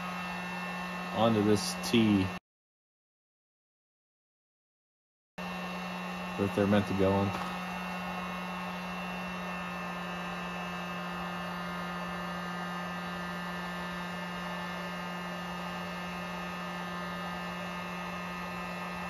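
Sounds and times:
heat gun motor hum: 0.0s - 2.4s, 5.4s - 19.0s.

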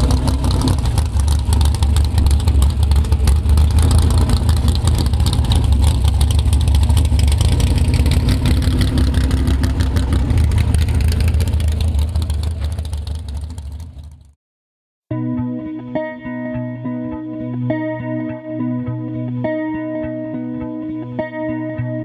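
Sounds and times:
car engine idling: 0.0s - 14.4s.

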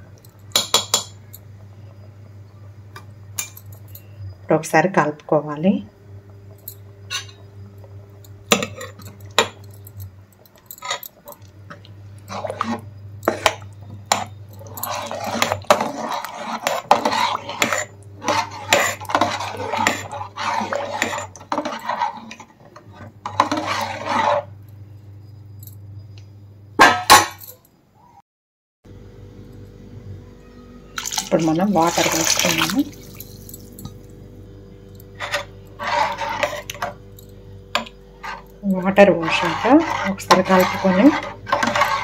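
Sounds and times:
metal ladle scraping a pot: 7.1s - 7.4s, 8.5s - 9.5s, 10.8s - 11.4s, 12.2s - 24.6s, 31.1s - 33.6s, 35.2s - 37.0s, 37.8s - 42.0s.

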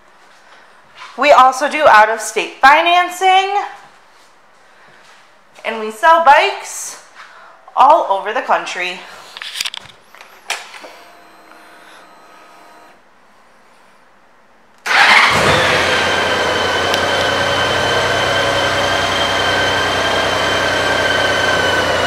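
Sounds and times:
high whine: 10.2s - 13.0s
motorcycle engine starting and idling: 14.8s - 22.0s.

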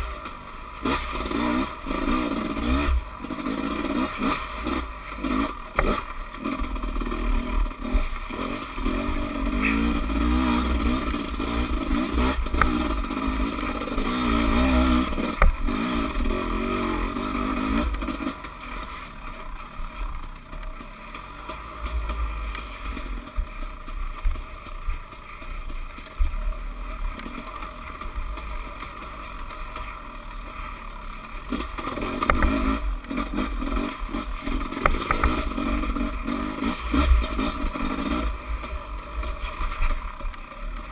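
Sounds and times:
dirt bike engine revving: 0.0s - 40.9s
bike clattering over rough ground: 31.1s - 40.9s.

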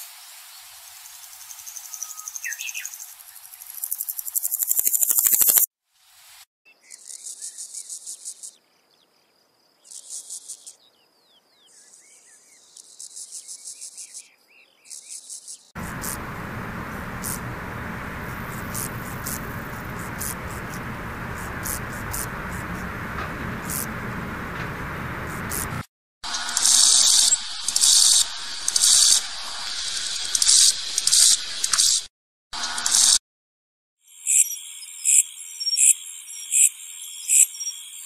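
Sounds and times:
grasshoppers stridulating: 1.0s - 5.6s, 14.9s - 32.0s, 32.6s - 33.2s
steady rushing hiss: 15.8s - 32.0s.

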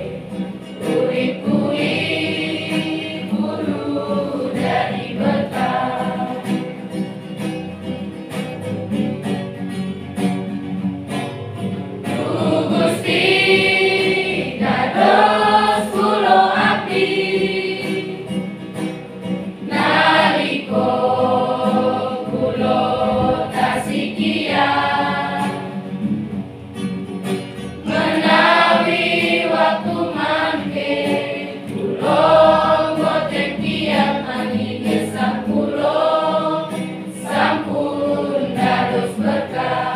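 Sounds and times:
children's choir singing a hymn: 0.0s - 6.8s, 12.1s - 18.4s, 19.6s - 25.9s, 27.8s - 39.9s.

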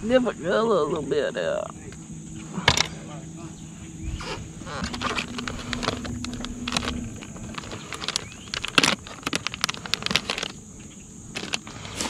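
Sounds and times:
low steady hum: 0.0s - 11.3s
plastic package crinkling: 4.9s - 10.6s.

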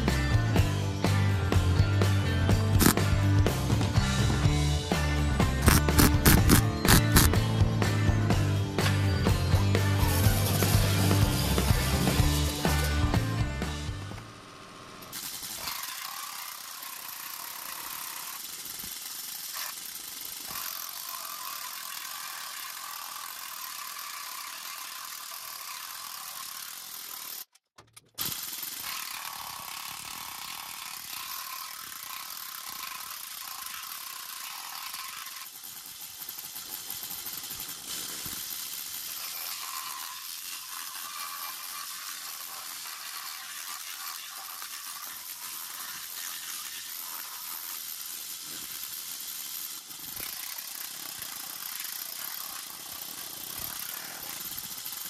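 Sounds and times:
mechanical running noise with hiss: 2.8s - 3.1s, 5.6s - 7.3s, 14.0s - 27.4s, 28.2s - 55.0s.

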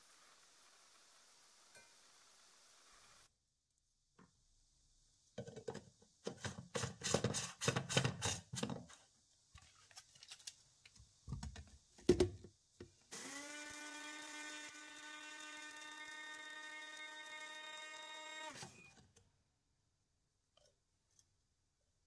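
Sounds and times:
electric grinder motor whine: 13.2s - 18.7s.

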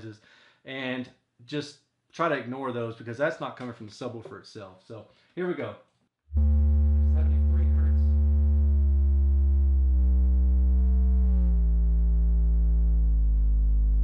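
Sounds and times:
subwoofer sine test tone: 6.3s - 14.0s.

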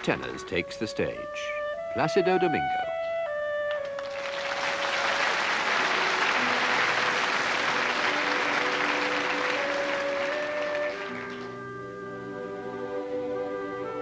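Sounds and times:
audience applauding: 3.8s - 11.6s.

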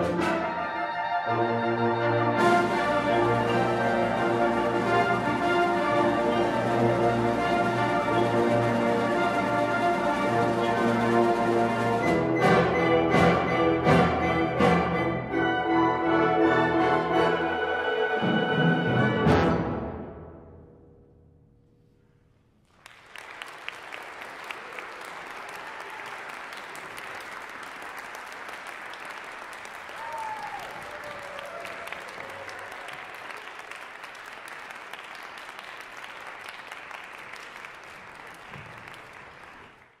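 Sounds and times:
audience applause: 2.0s - 12.2s, 22.7s - 40.0s.

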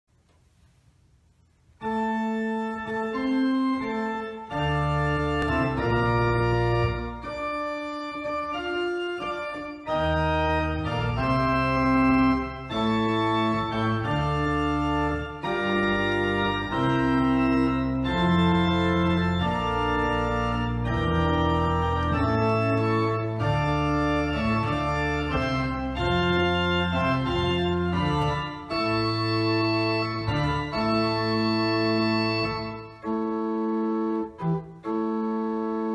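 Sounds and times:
church organ chords: 1.8s - 35.9s.

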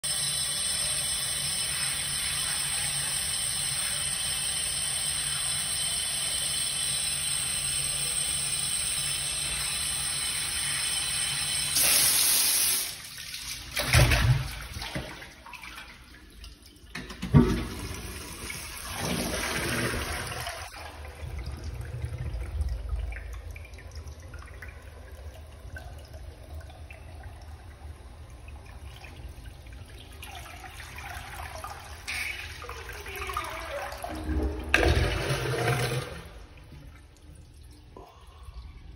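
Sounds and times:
water running: 0.0s - 38.9s
water trickling: 20.6s - 38.9s.

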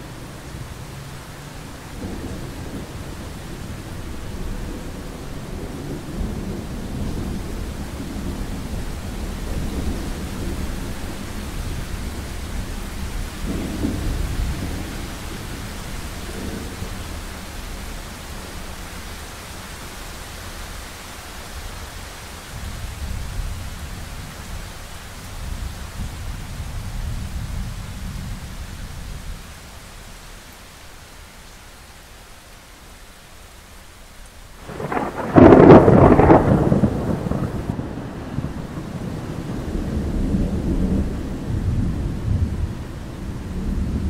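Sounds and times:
rain hissing: 0.0s - 44.0s
thunder rumbling: 34.6s - 44.0s.

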